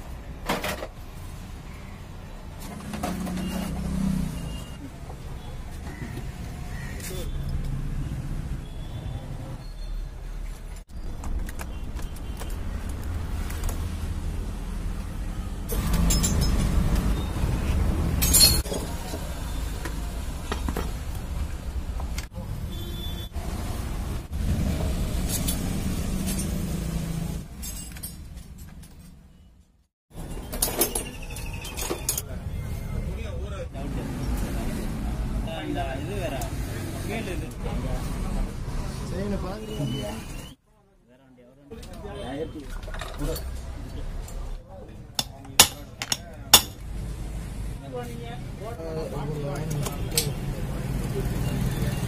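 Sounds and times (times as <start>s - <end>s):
traffic rumble: 0.0s - 40.6s, 41.7s - 52.0s
metal tool and bolt clinks: 15.8s - 16.8s, 18.2s - 18.8s, 27.6s - 29.2s.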